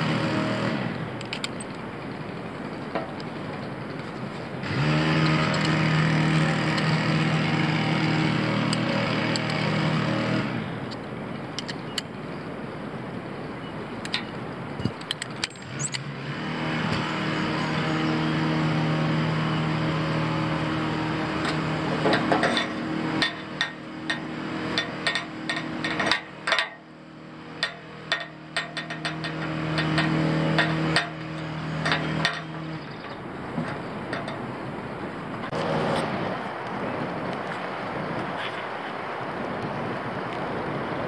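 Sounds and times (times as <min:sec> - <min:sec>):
engine running: 0:00.0 - 0:41.0
metal clips clinking on flagpole: 0:01.2 - 0:04.5, 0:05.2 - 0:07.2, 0:10.9 - 0:12.2, 0:14.0 - 0:16.1, 0:20.4 - 0:34.8.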